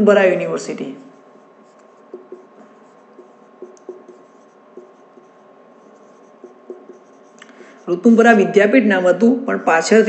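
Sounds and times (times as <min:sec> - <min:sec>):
marker scratching on board: 0:01.1 - 0:08.2.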